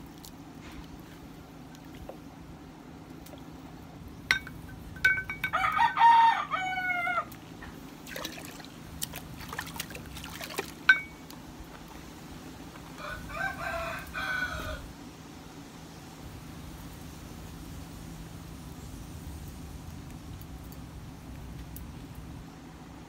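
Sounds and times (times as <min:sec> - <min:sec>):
hammer striking anvil: 0:04.3 - 0:05.6
rooster crowing: 0:05.4 - 0:07.4, 0:13.0 - 0:14.9.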